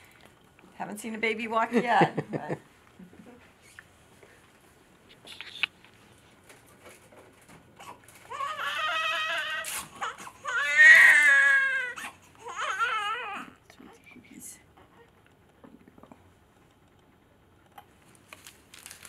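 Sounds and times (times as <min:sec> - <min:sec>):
newborn baby crying: 0:07.8 - 0:13.6.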